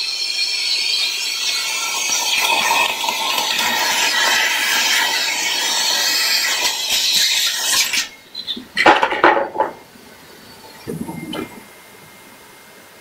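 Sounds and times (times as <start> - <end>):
clattering knocks: 8.6 - 9.8.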